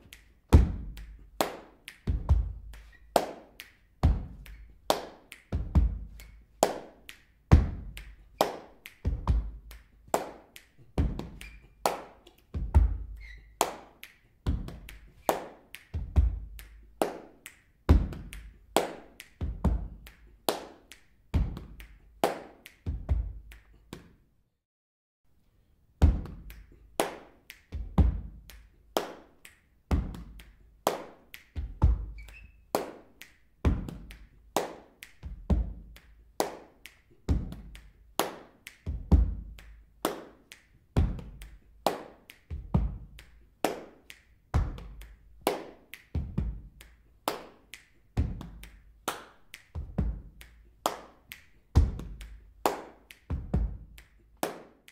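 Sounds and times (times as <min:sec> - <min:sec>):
funk drum beat: 0:07.5 - 0:08.0.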